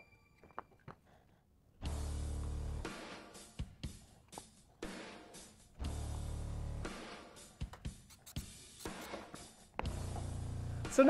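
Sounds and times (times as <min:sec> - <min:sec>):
background music with bass and drums: 0:01.8 - 0:04.0, 0:04.8 - 0:09.1, 0:09.8 - 0:11.0.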